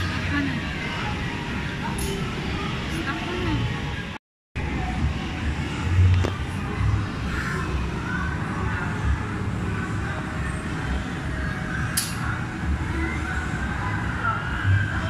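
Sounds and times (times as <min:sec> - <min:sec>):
faint distant voices: 0:00.0 - 0:15.0
sharp click: 0:12.0 - 0:12.2.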